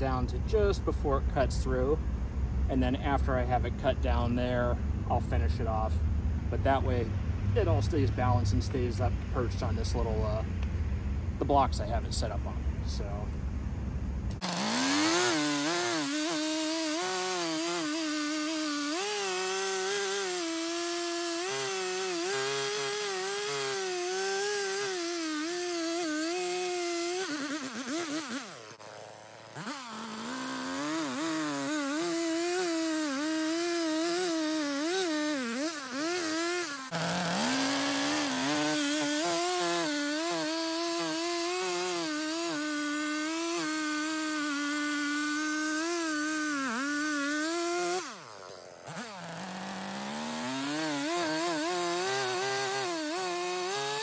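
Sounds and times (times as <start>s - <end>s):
chainsaw cutting a log: 14.3s - 54.0s.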